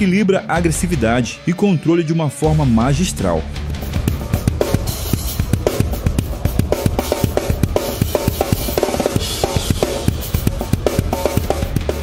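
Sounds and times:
drum kit playing fast: 0.0 - 12.0
metal band music: 0.0 - 12.0.

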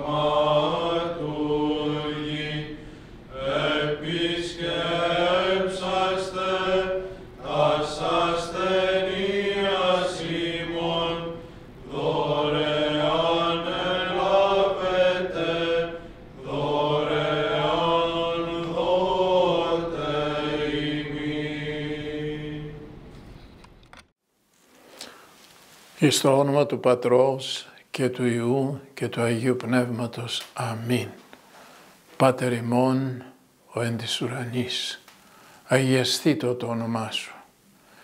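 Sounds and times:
person chanting: 0.0 - 22.8.

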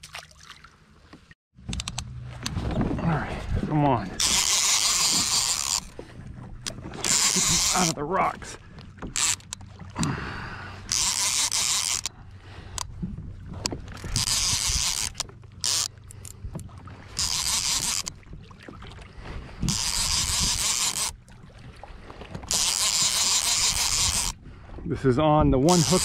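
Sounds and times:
fishing reel whirring: 4.2 - 8.0, 9.0 - 12.9, 13.9 - 16.4, 17.1 - 18.2, 19.6 - 21.2, 22.4 - 24.4, 25.7 - 26.0.

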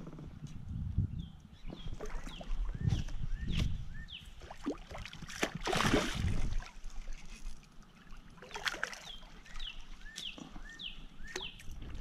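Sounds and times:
fish splashing in water: 4.4 - 7.2, 8.2 - 9.6.

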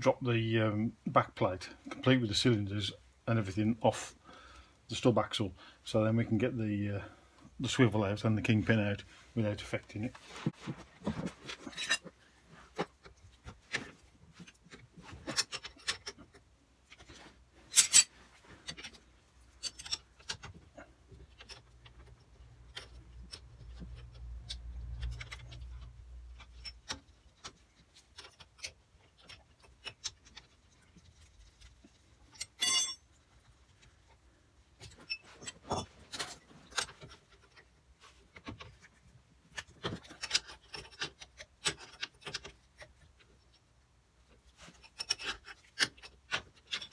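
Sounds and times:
hand tools clinking on metal: 32.3 - 33.1
high metallic ring: 32.6 - 33.1.

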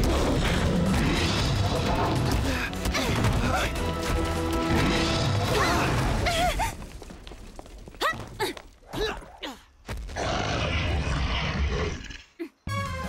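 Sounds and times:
action music: 0.0 - 6.2.

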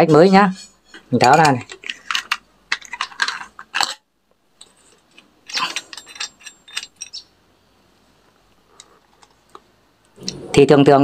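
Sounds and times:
metal parts clinking and scraping: 0.1 - 4.0, 4.6 - 7.3.

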